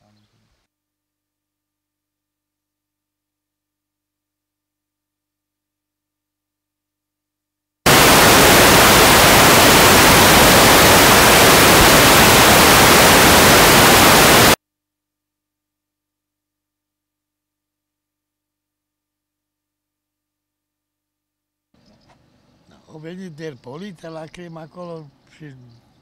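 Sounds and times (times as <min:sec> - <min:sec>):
static hiss burst: 0:07.9 - 0:14.6.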